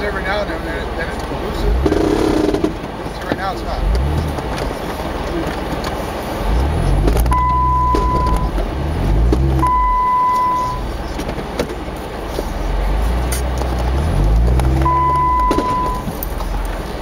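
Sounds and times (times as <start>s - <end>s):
car engine revving: 0.0s - 17.0s
high beeps: 7.3s - 8.5s, 9.6s - 10.9s, 14.8s - 16.1s.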